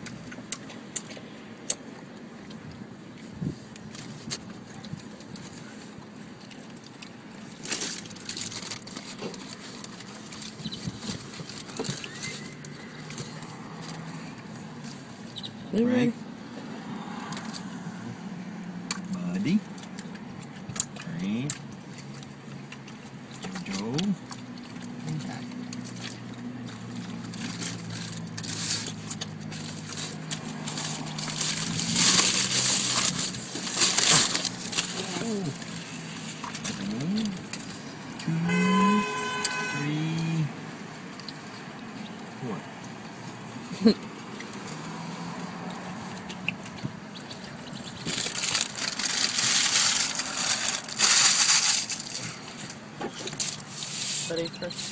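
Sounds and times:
dogs jostling and eating: 3.2s - 15.1s, 19.6s - 38.0s, 41.3s - 54.9s
car engine idling: 17.4s - 54.9s.

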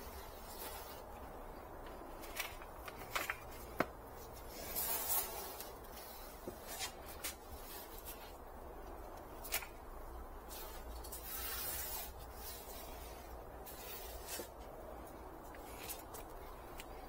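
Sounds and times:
low steady hum: 0.0s - 17.0s
soil rustling: 0.0s - 17.0s.

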